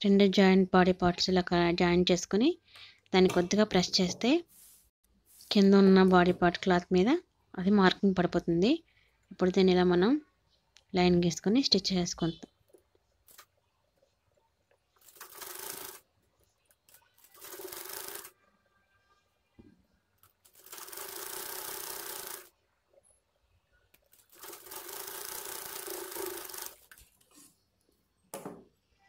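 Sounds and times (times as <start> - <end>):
sewing machine stitching: 15.0 - 16.0, 17.2 - 18.3, 20.4 - 22.5, 24.1 - 27.0.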